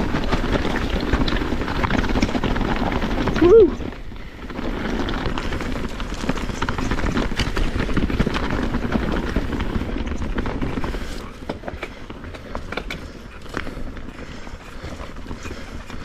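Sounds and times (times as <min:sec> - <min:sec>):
bike rattling over rocks: 0:00.0 - 0:16.0
tyre and wind rush: 0:00.0 - 0:16.0.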